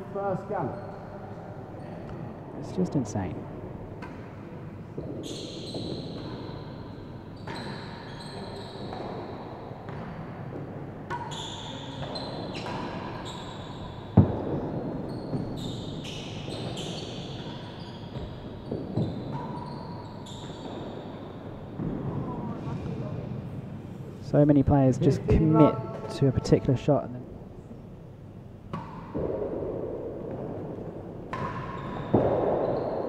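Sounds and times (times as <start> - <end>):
ball striking rackets and walls: 3.9 - 22.4, 28.6 - 33.0.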